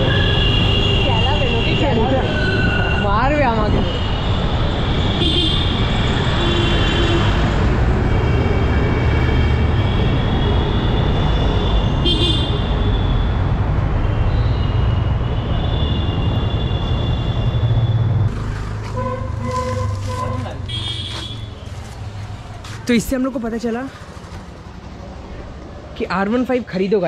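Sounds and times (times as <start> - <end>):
vehicle horns honking: 0.0 - 3.1, 5.2 - 13.4, 18.9 - 21.6
traffic rumble: 0.0 - 27.0.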